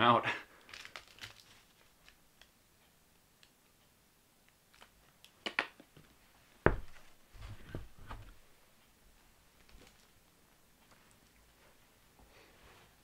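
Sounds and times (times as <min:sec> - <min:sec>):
bottle thumping on table: 0:06.7 - 0:07.0.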